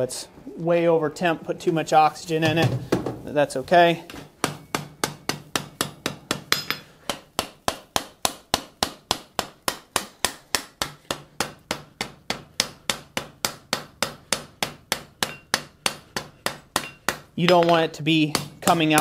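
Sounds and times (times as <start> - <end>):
hammer striking hot metal: 4.4 - 19.0.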